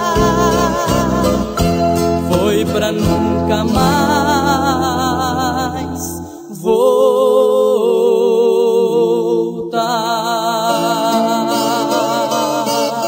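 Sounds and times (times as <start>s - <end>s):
acoustic guitar: 0.0s - 6.6s, 9.7s - 13.0s
person singing with vibrato: 0.0s - 13.0s.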